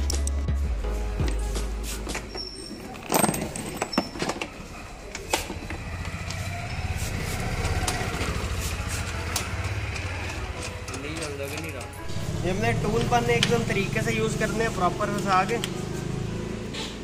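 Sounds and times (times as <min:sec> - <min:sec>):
small engine idling: 0:05.6 - 0:11.4.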